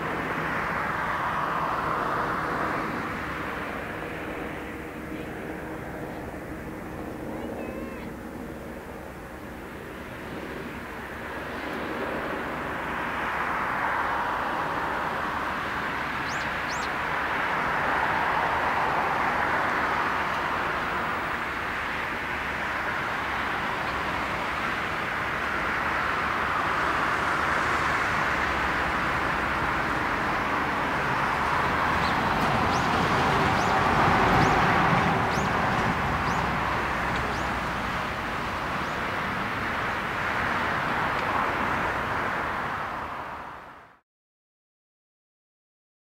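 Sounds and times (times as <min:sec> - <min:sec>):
jet engines rushing: 0:00.0 - 0:43.1.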